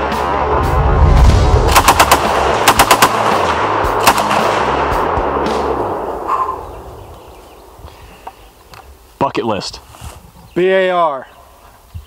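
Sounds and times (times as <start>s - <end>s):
background music: 0.0s - 7.8s
rifle gunshots: 1.6s - 4.9s.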